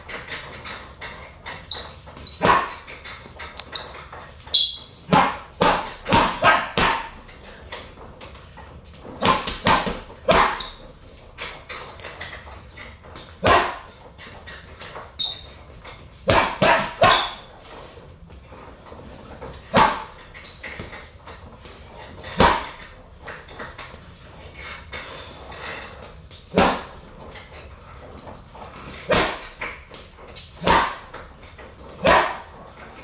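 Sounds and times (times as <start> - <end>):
gloves punching heavy bag: 2.2 - 3.4, 4.5 - 7.3, 9.1 - 11.6, 13.2 - 14.0, 16.2 - 17.5, 19.7 - 21.0, 22.2 - 22.9, 26.4 - 27.0, 28.8 - 31.3, 31.9 - 32.5.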